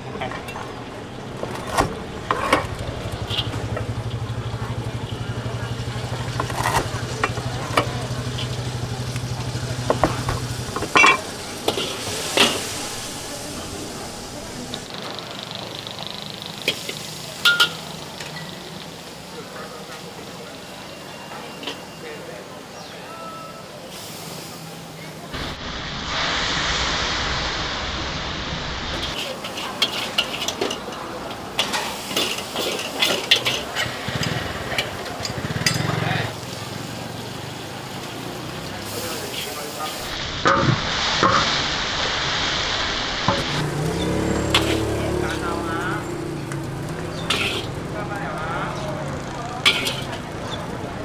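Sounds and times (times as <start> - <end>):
low engine-like hum: 0.0 - 14.9, 43.5 - 51.0
frying: 0.0 - 22.3, 23.9 - 51.0
loud sizzling in a wok: 0.0 - 23.0, 23.6 - 51.0
metal spatula scraping wok: 10.2 - 14.5, 29.0 - 31.0, 31.6 - 35.9, 43.4 - 45.5, 47.1 - 47.9, 49.6 - 50.7.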